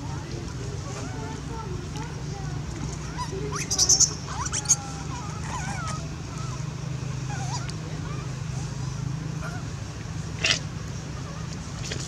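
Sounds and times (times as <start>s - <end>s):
infant monkeys squeaking and cooing: 3.0s - 9.7s.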